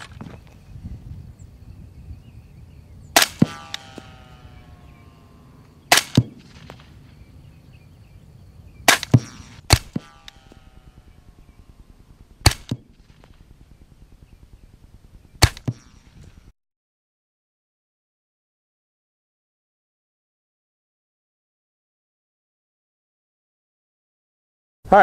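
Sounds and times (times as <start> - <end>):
suppressed rifle shots: 3.1 - 4.2, 5.8 - 7.2, 8.8 - 16.5.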